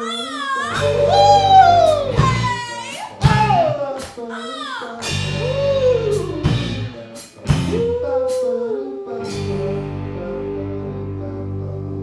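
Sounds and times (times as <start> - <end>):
sliding vocal notes: 0.0 - 12.0
live rock band playing: 0.8 - 2.6, 5.0 - 7.9
drum hits: 5.0 - 7.8.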